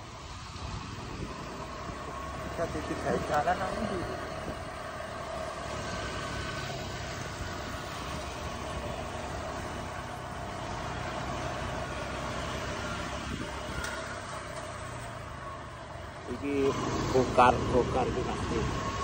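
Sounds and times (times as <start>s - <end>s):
wind hiss: 0.0s - 15.1s
motorbike running: 0.0s - 19.0s
road noise: 0.0s - 19.0s.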